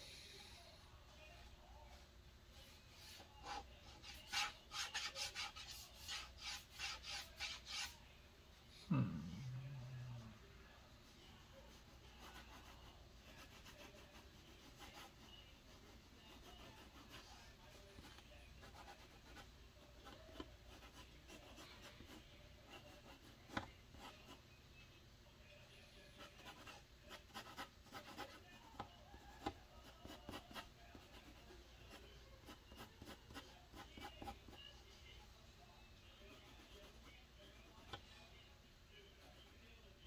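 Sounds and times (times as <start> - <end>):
drawing tool scratching: 3.2 - 8.0, 11.6 - 24.4.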